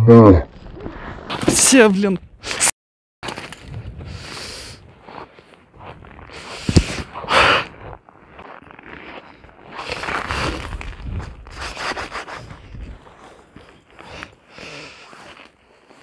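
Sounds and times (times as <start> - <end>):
clothing rubbing on wet ice: 4.9 - 16.0.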